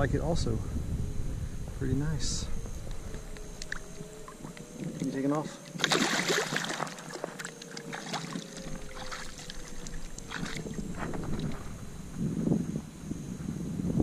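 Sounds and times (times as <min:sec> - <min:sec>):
water dripping: 0:02.8 - 0:11.6
fish splashing in water: 0:03.1 - 0:11.7.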